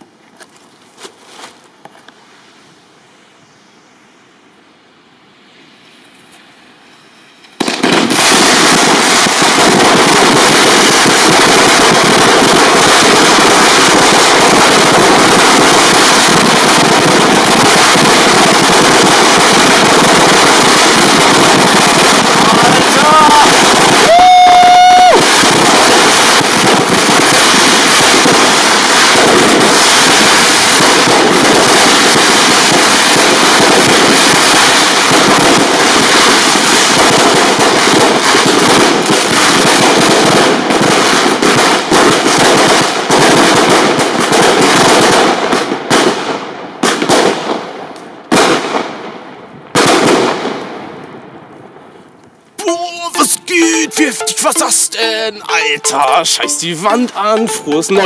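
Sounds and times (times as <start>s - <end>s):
fireworks crackling and banging: 6.0s - 58.0s.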